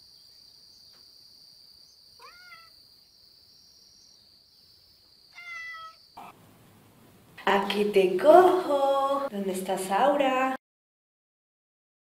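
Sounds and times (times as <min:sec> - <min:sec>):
cat meowing: 0:02.2 - 0:02.8, 0:05.3 - 0:06.0.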